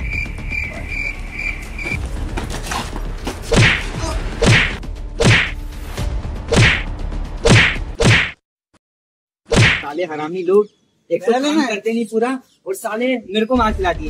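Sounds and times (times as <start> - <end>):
punch swoosh and thud: 3.5 - 5.6, 6.5 - 8.4, 9.5 - 9.9.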